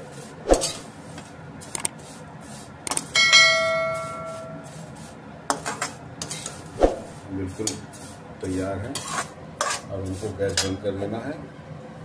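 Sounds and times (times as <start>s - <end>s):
pan ringing like a bell: 3.1s - 4.7s
metal spatula scraping pan: 3.1s - 10.8s.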